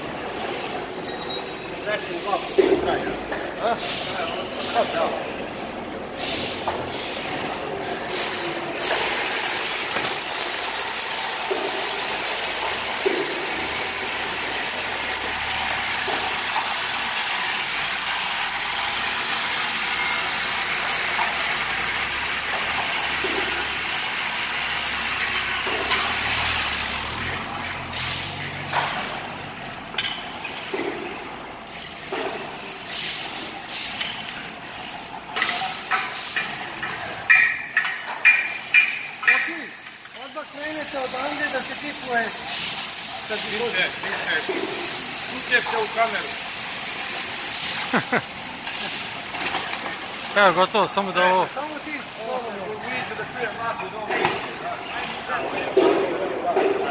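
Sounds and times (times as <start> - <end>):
machine hissing: 2.0 - 2.9, 8.1 - 28.8, 38.2 - 53.7.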